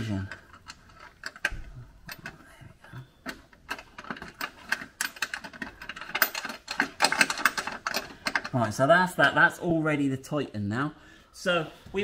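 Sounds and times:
metal nuts clicking on bolts: 0:00.0 - 0:02.4, 0:03.2 - 0:09.4.

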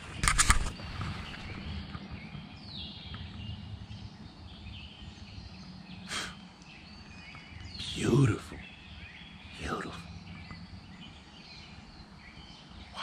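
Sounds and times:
birds chirping: 0:00.0 - 0:13.0
low outdoor rumble: 0:00.0 - 0:13.0
sharp click: 0:00.2 - 0:00.8.

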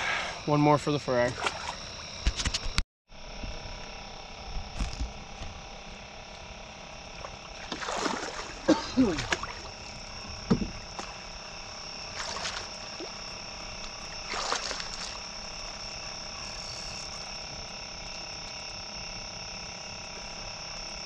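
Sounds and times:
insects and frogs chorus: 0:00.0 - 0:21.0
low thump: 0:10.4 - 0:10.8.

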